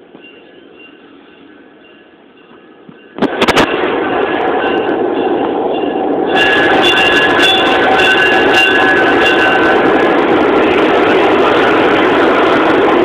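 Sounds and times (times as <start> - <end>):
ringing tones from rolling stock: 0.0 - 3.8, 4.5 - 10.0
diesel locomotive moving: 0.0 - 13.0.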